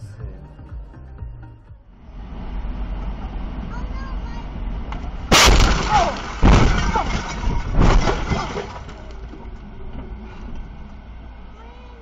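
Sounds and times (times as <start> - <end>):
car crash impacts: 4.9 - 9.7.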